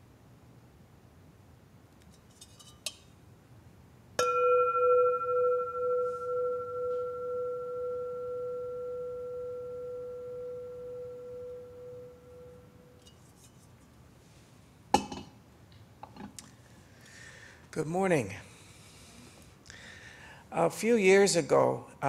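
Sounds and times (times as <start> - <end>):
singing bowl ringing: 4.2 - 13.1.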